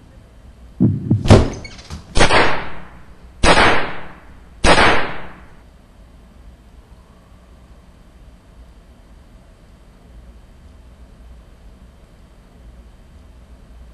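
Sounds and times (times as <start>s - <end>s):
handgun shots with echo: 1.1s - 5.5s.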